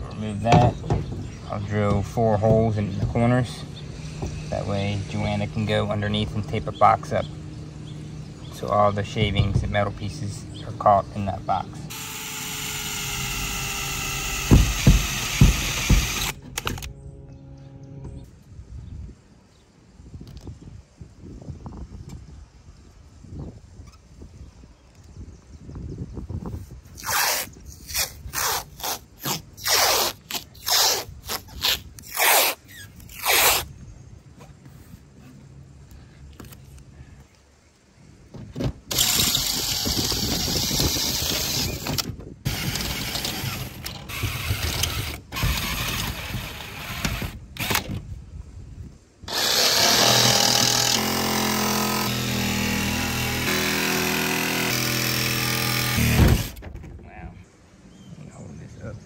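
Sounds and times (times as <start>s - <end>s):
cordless drill drilling metal: 11.9s - 16.9s, 38.9s - 48.0s, 49.3s - 56.6s
jigsaw cutting metal: 11.9s - 16.9s, 38.9s - 47.9s, 49.3s - 56.6s
tape ripping off roll: 26.9s - 33.7s, 55.1s - 56.9s.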